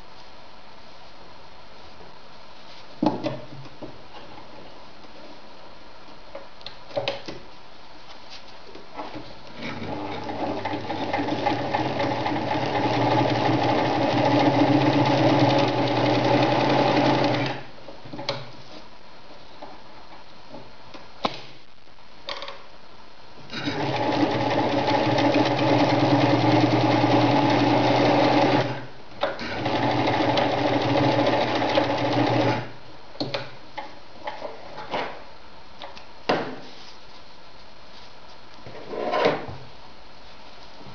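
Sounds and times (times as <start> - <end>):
electric sewing machine stitching: 9.6 - 17.7, 23.5 - 28.8, 29.4 - 32.7.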